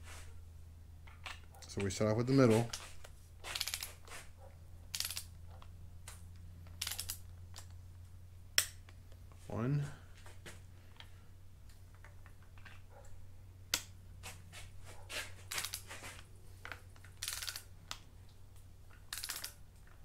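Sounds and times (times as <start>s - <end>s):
torque wrench ratchet clicking: 17.2s - 17.6s, 19.1s - 19.6s.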